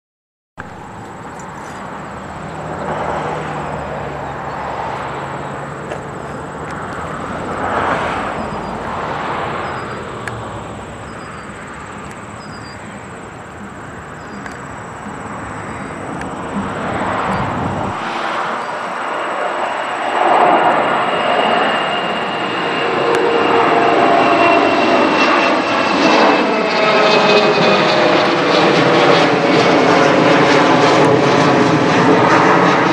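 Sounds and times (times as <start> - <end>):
jet engines rumbling at takeoff: 0.6 - 32.9.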